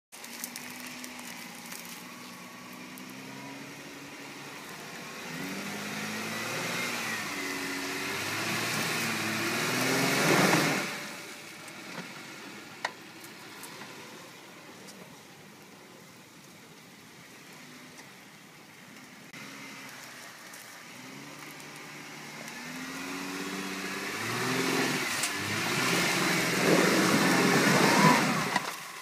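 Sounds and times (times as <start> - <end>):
engine revving: 1.8 - 12.9, 19.3 - 29.0.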